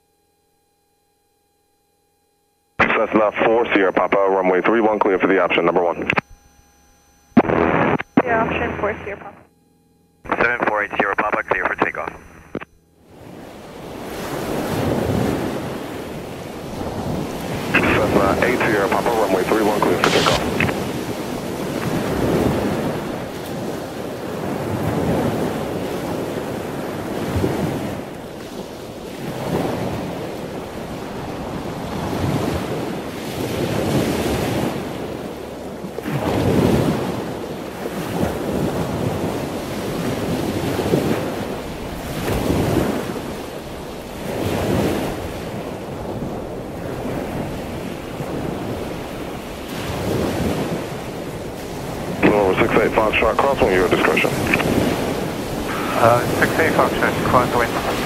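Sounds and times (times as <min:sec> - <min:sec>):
aircraft engine drone: 0:02.8 - 0:21.0, 0:52.1 - 0:58.0.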